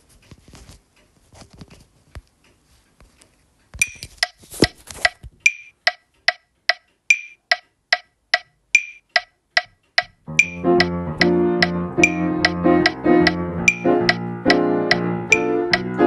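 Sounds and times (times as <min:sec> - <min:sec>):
irregular clicks: 0:03.7 - 0:16.0
click track ticking: 0:05.0 - 0:16.0.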